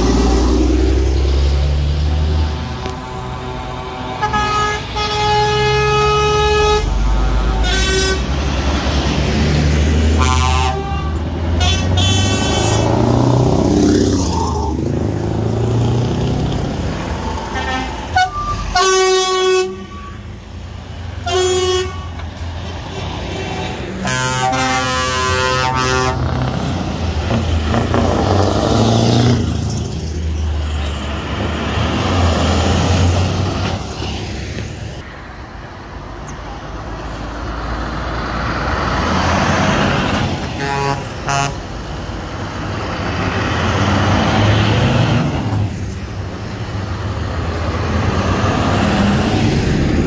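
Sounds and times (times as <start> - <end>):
diesel lorries driving past: 0.0 - 50.0
truck horn toots: 4.2 - 8.5, 10.1 - 13.2, 17.5 - 20.4, 21.2 - 22.3, 24.0 - 26.4, 40.5 - 41.7.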